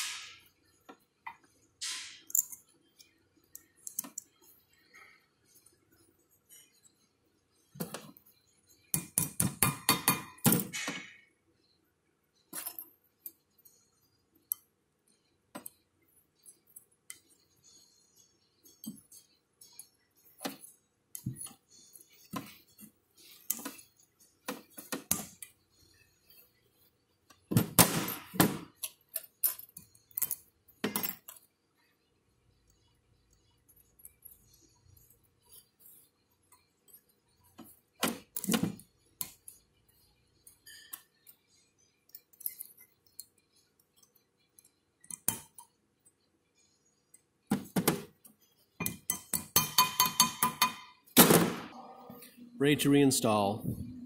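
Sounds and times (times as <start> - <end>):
metal clips clinking and rattling: 1.8 - 2.7, 28.2 - 31.4.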